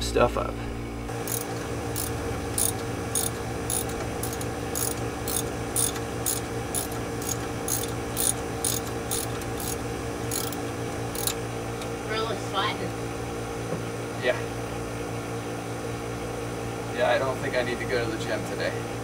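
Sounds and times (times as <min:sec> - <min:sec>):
steady hum: 0:00.0 - 0:19.0
socket ratchet clicking: 0:01.3 - 0:11.4.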